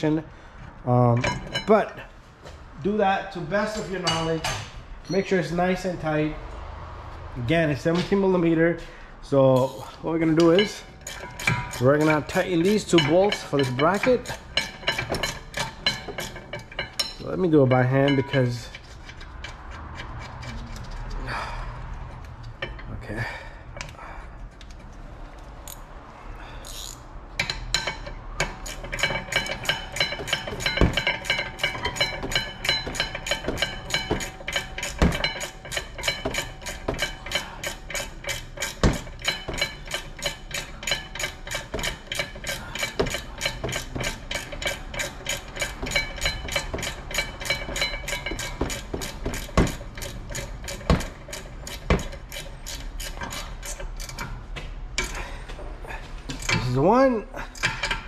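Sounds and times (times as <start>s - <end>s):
hand ratchet clicking: 9.6s - 21.2s, 24.6s - 25.9s, 26.6s - 54.4s, 55.0s - 55.3s
metal knocks: 10.2s - 21.0s, 27.4s - 56.8s.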